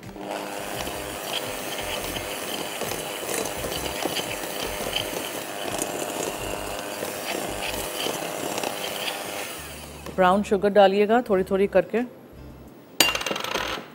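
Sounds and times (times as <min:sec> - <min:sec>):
electric hand mixer running: 0:00.0 - 0:10.2.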